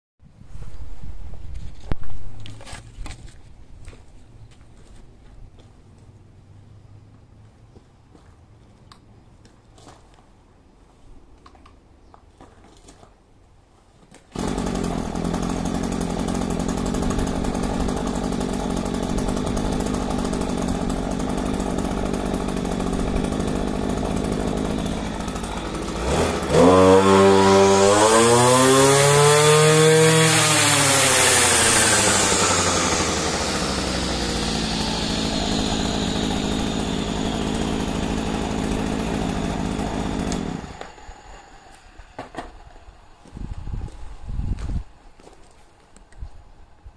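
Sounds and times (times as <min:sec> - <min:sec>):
brush cutter engine idling and revving: 0:14.3 - 0:43.7
blade spinning with high whine: 0:30.7 - 0:43.3.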